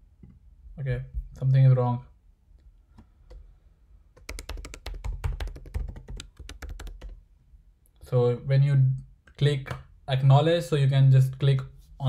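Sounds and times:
keyboard typing: 4.2 - 7.2.

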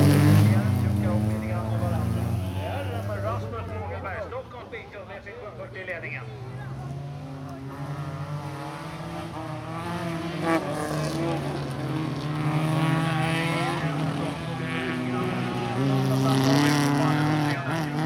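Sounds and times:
car engines running hard: 0.0 - 18.0.

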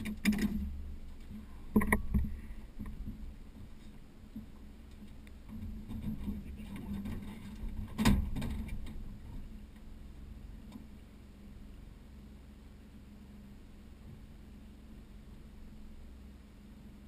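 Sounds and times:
gear clicking and knocking: 0.0 - 3.2
low steady hum: 0.0 - 17.0.

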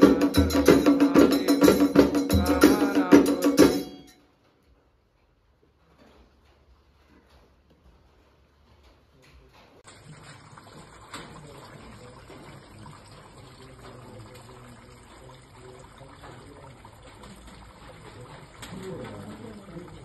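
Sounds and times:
water trickling and splashing: 9.8 - 20.0
people talking faintly: 11.0 - 20.0.

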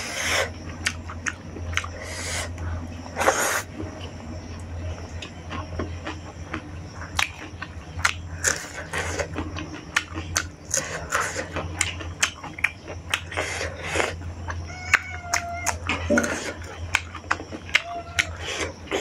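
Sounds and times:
person chewing crunchy food: 0.0 - 19.0
steady low hum: 0.0 - 19.0
mouth clicks: 5.1 - 19.0.

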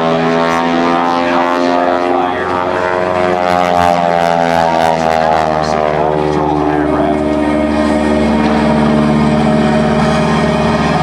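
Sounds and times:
radial engine and propeller in flight: 0.0 - 11.0.

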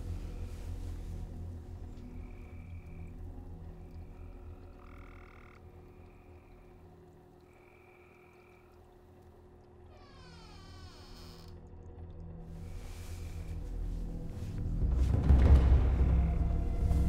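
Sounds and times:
low steady hum: 0.0 - 17.0
frogs trilling: 1.8 - 11.8.

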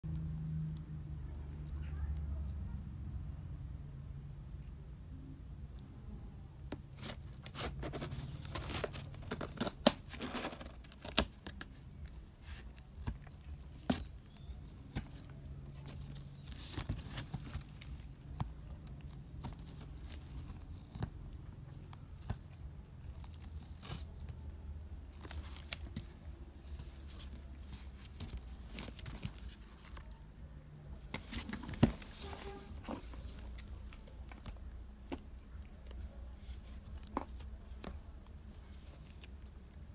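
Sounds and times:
cats clawing cardboard box: 6.7 - 24.3.

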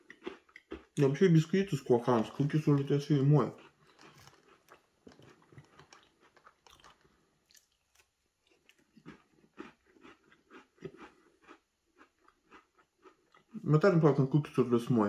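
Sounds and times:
chewing soft cookie: 0.0 - 13.9.

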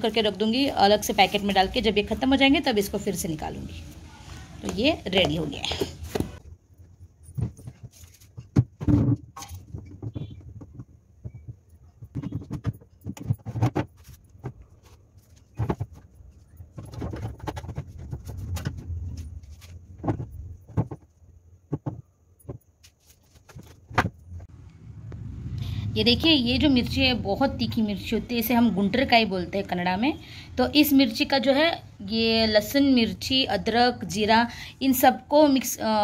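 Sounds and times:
produce knocking on plastic shelves: 7.4 - 14.6, 21.7 - 22.6.

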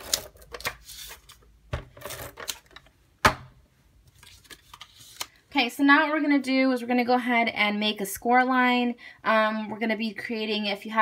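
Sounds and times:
paper handling: 4.1 - 5.3.

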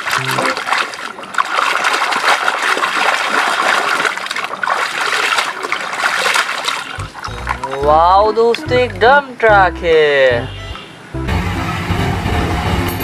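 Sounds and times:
water splashing in a basin: 0.0 - 9.0.

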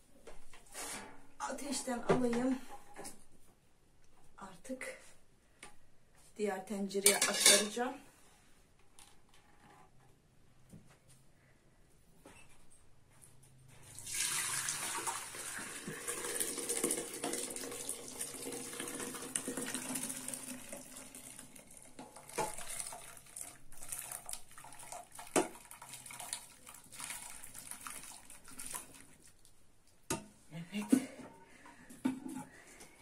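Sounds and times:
water pouring into a pot: 13.8 - 29.4.

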